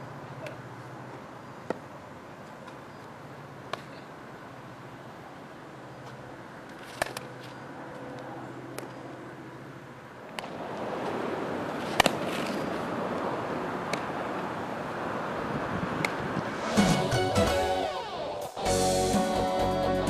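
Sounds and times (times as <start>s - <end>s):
rushing outdoor noise: 0.0s - 20.0s
bat and glove hitting ball: 10.3s - 10.6s, 11.8s - 12.6s.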